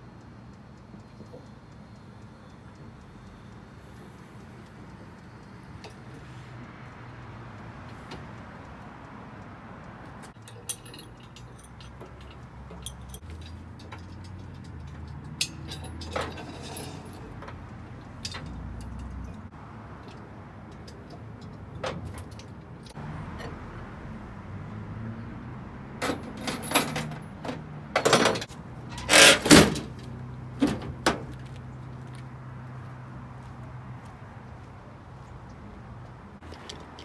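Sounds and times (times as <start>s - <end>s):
sharp metal clicks and knocks: 9.8s - 23.6s, 25.9s - 32.3s, 36.4s - 37.0s
chain and hook clinking: 10.4s - 17.4s.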